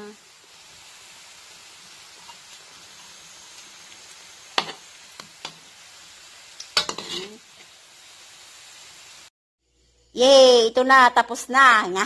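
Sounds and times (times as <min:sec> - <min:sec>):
food sizzling in hot oil: 0:00.0 - 0:12.0
metal utensil clacking on pan: 0:06.8 - 0:07.3.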